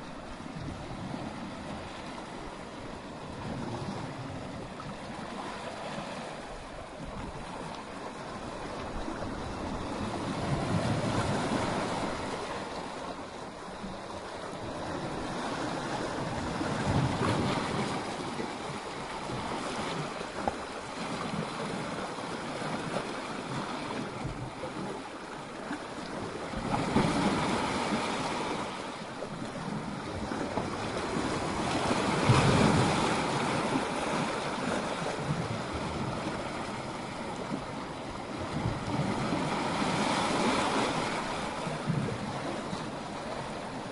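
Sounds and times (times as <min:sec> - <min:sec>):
waves crashing against rocks: 0:05.0 - 0:25.0, 0:26.0 - 0:43.9.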